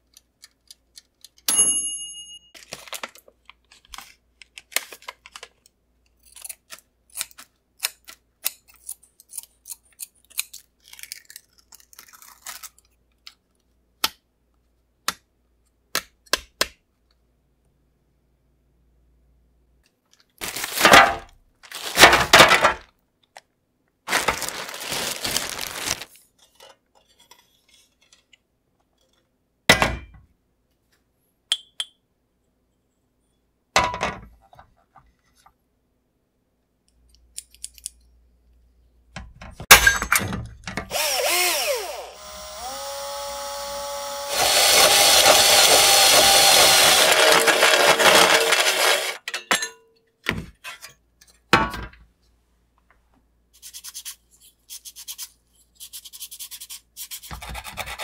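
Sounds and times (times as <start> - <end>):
cloth sheet rustling: 24.1 - 26.1
cordless drill whining: 40.9 - 49.2
hole saw grinding metal: 40.9 - 49.2.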